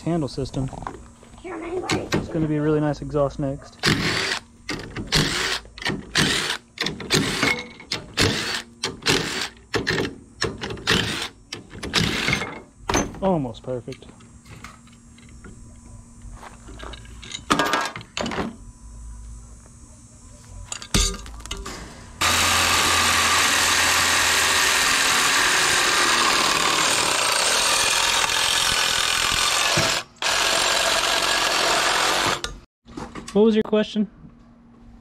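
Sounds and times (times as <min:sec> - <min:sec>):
reciprocating saw cutting steel: 0:22.2 - 0:32.6.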